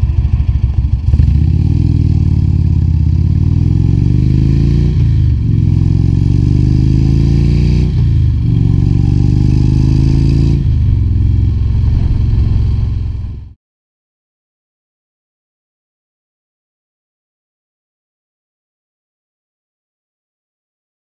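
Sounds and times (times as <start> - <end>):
motorcycle accelerating through gears: 0.0 - 13.6.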